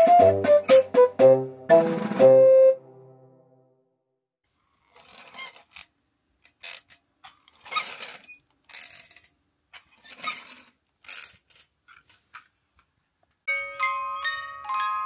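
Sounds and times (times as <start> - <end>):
toy wheel mechanism clacking: 4.8 - 11.6.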